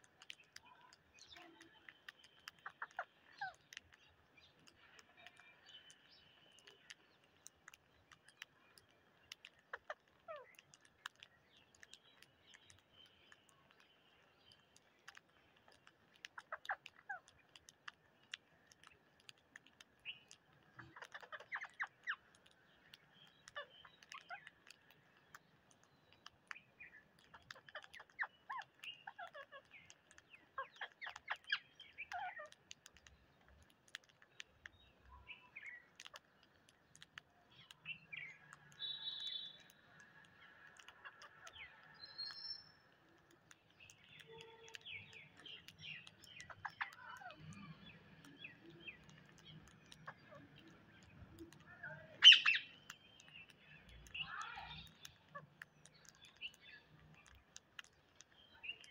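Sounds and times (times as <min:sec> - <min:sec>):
beaks pecking on concrete: 0:00.0 - 0:58.9
parakeets chirping: 0:09.2 - 0:10.6, 0:20.1 - 0:22.3, 0:22.9 - 0:24.6, 0:26.6 - 0:32.6, 0:37.5 - 0:43.2, 0:43.8 - 0:57.3.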